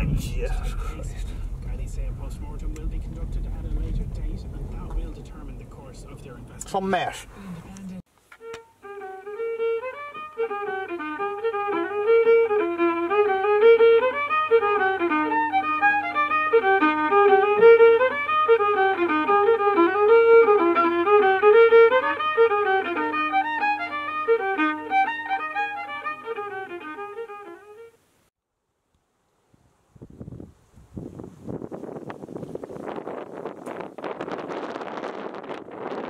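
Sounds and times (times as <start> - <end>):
fiddle playing quick tune: 8.3 - 28.0.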